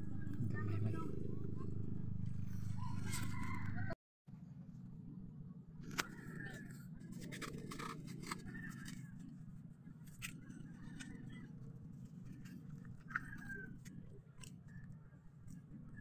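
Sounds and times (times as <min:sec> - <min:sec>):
steady low rumble: 0:00.0 - 0:10.1.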